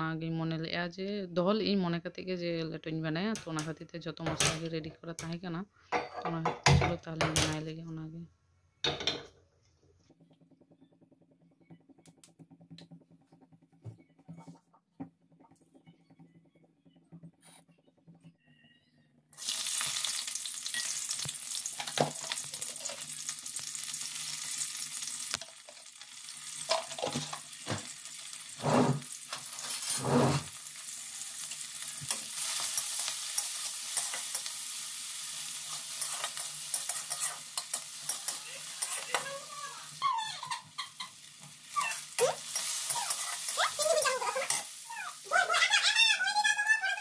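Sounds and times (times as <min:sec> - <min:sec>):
onions sizzling in hot oil: 0:19.4 - 0:46.0.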